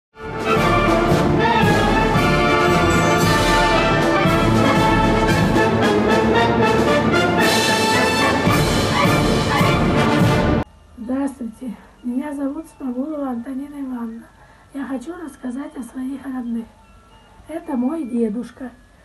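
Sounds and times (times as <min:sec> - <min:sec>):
orchestral music with brass: 0:00.2 - 0:10.6.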